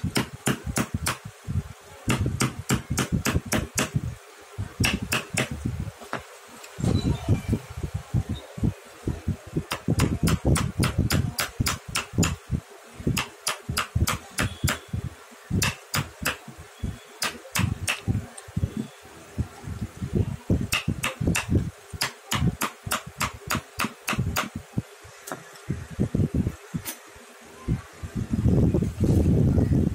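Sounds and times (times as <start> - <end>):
chisel tapped with a mallet: 2.1 - 4.0, 9.7 - 12.4, 15.6 - 16.4, 17.2 - 18.1, 20.7 - 24.6.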